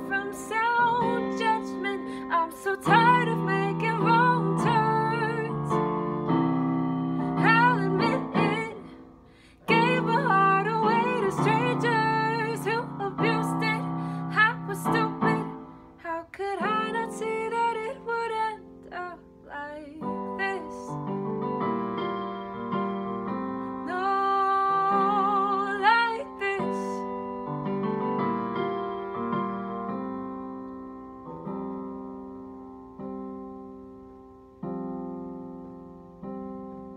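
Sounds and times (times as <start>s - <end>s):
woman singing: 0.0s - 6.0s, 7.1s - 21.2s, 23.8s - 27.2s
piano accompaniment: 0.0s - 19.3s, 20.0s - 36.9s.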